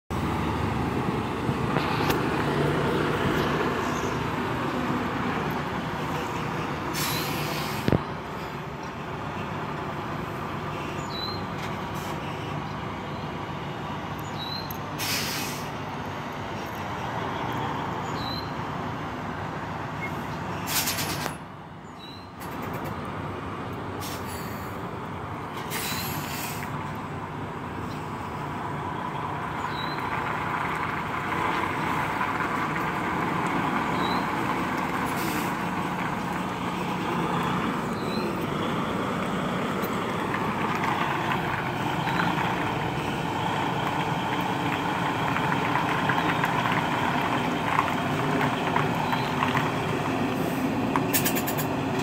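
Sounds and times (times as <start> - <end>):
truck diesel engine running: 0.1 - 21.8, 22.4 - 52.0
air hiss bursts: 6.9 - 8.0, 15.0 - 15.7.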